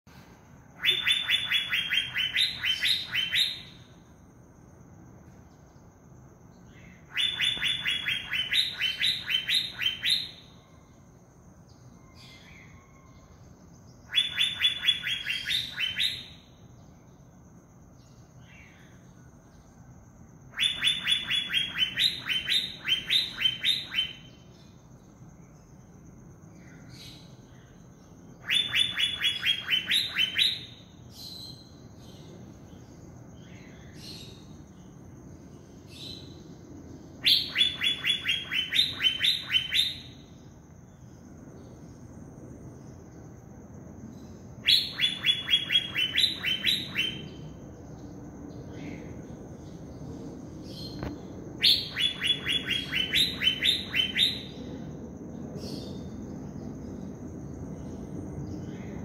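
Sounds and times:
bird singing ringing notes: 0.8 - 4.2, 6.6 - 17.3, 20.5 - 26.0, 26.6 - 35.0, 37.2 - 41.8, 44.2 - 54.9.

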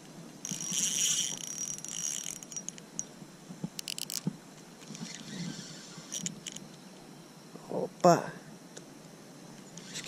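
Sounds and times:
fishing reel buzzing: 0.4 - 3.1, 3.8 - 4.2, 4.9 - 6.6, 9.8 - 10.0
fishing reel clicking: 0.4 - 3.1, 3.8 - 4.2, 5.1 - 6.6.

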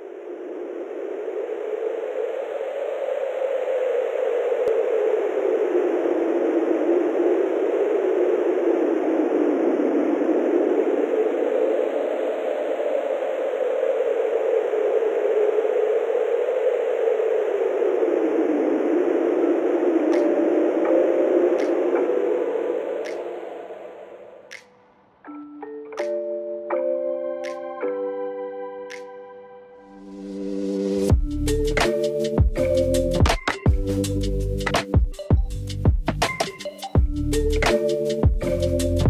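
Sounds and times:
steady rushing noise: 0.0 - 24.7.

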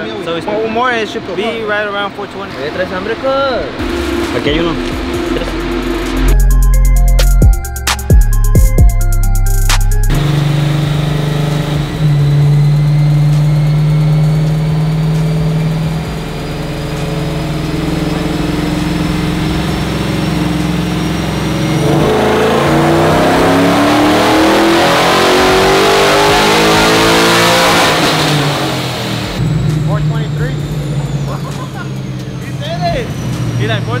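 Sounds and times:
pickup engine revving: 0.0 - 8.5, 9.7 - 34.0.

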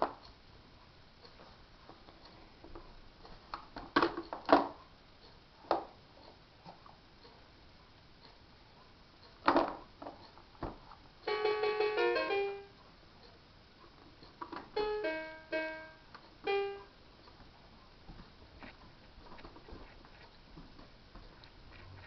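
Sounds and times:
electronic toy jingle: 11.3 - 12.7, 14.8 - 16.9.

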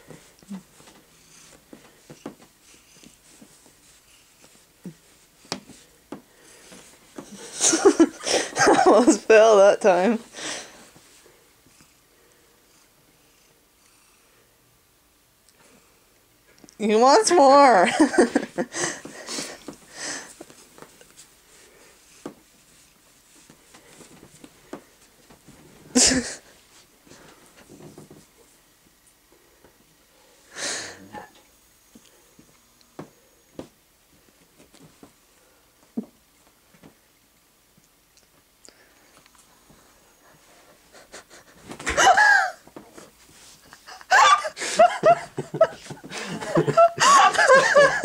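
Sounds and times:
hand rubbing cat on fabric: 0.8 - 5.9.

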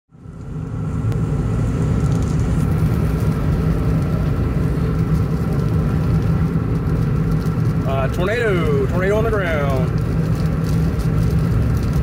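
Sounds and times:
car road and engine rumble: 0.1 - 12.0.

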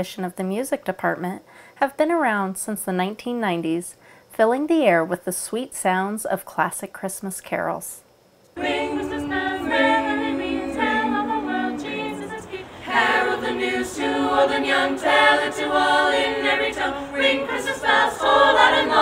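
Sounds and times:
choir singing a cappella: 8.6 - 19.0.

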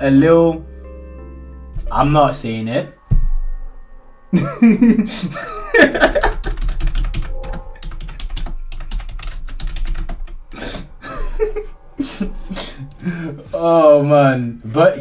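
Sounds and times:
man laughing: 4.3 - 6.6, 11.0 - 13.5
rapid irregular clicks: 6.1 - 10.4.

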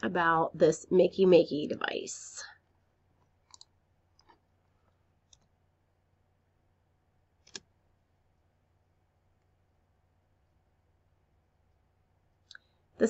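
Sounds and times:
computer mouse clicks: 3.4 - 4.4, 5.3 - 5.5, 7.4 - 7.7.

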